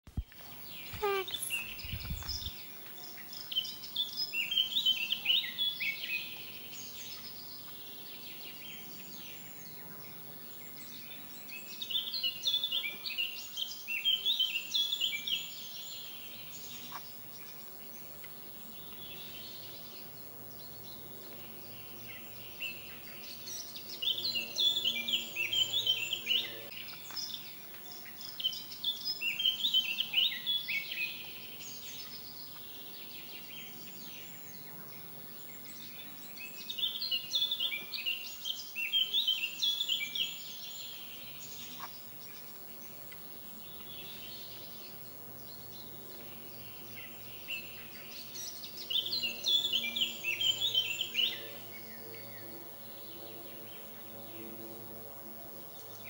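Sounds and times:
faint low hum: 0.1s - 13.7s
songbird chirping: 0.1s - 54.6s.

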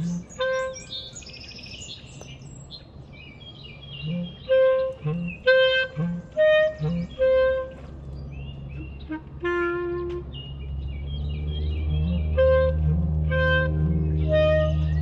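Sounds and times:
birds chirping: 0.0s - 15.0s
clarinet playing short notes: 4.1s - 7.9s, 8.8s - 10.4s, 12.4s - 15.0s.

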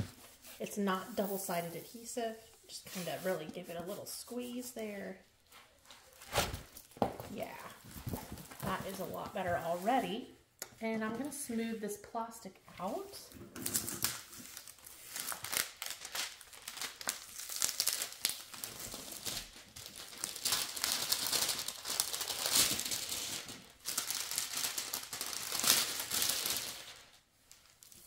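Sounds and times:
plastic film crinkling: 6.0s - 10.3s, 12.9s - 28.0s.

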